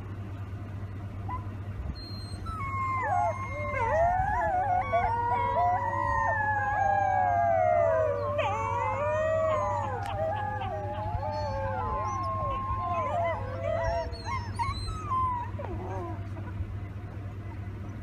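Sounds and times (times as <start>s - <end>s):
vehicle engine idling: 0.0s - 18.0s
wolf pups howling: 1.3s - 16.7s.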